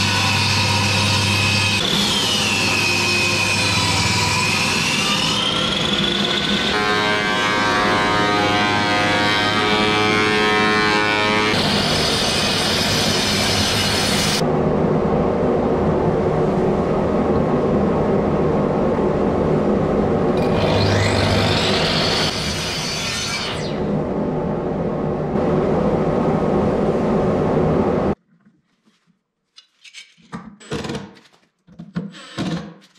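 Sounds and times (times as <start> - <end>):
table saw cutting wood: 0.0 - 14.4, 20.4 - 24.0
miter saw motor whine: 20.4 - 24.1.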